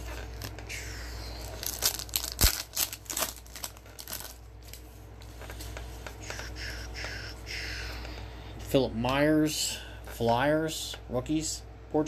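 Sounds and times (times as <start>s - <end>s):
trading card packaging crackling: 0.0s - 4.9s.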